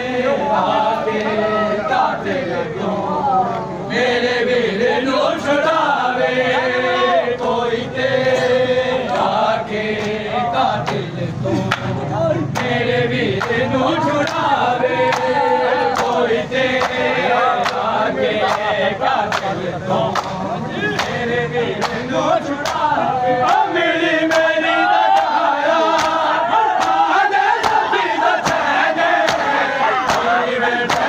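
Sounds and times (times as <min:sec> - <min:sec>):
men chanting in unison: 0:00.0 - 0:31.0
hands slapping bare chests: 0:25.2 - 0:27.8.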